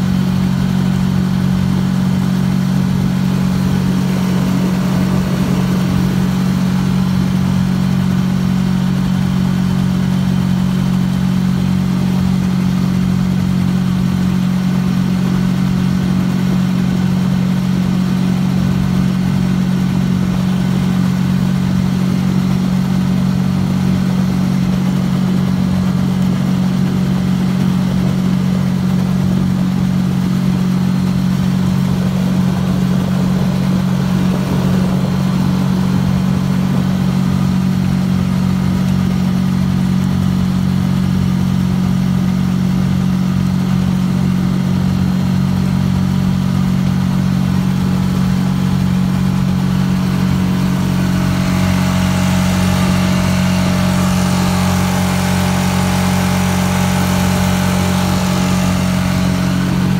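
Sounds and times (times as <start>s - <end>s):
outboard motor running: 0.0s - 59.9s.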